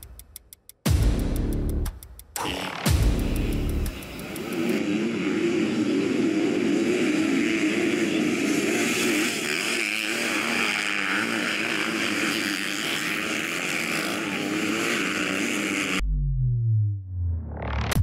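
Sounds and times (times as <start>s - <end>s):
dirt bike engines revving: 2.4s - 16.0s.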